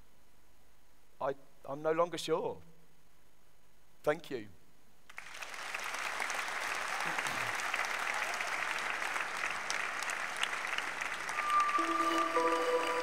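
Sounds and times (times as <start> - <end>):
large audience applauding: 5.1 - 13.0
held notes of outro music: 11.4 - 13.0.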